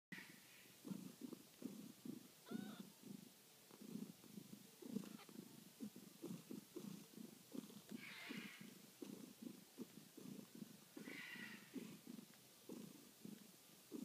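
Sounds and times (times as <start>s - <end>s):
cat purring: 0.2s - 14.0s.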